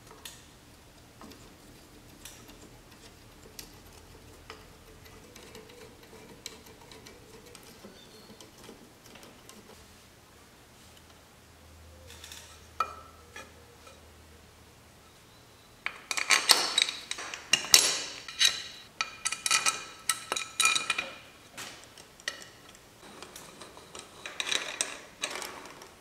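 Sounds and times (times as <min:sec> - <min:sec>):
metal objects clinking: 0:15.8 - 0:21.3.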